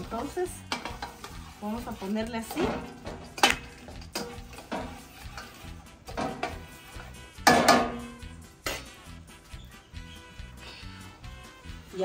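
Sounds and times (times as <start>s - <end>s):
utensil clinking against metal pot: 0.0s - 6.8s, 7.4s - 8.9s
faint background music: 0.0s - 12.0s.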